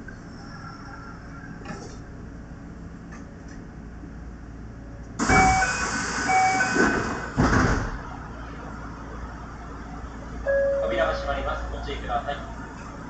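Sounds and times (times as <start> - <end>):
door-closing warning beeps: 5.2 - 7.0
train doors shutting with thud: 5.2 - 8.0.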